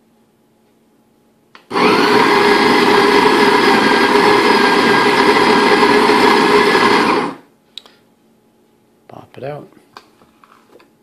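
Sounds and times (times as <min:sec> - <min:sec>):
coffee grinder grinding whine: 0:01.7 - 0:07.5.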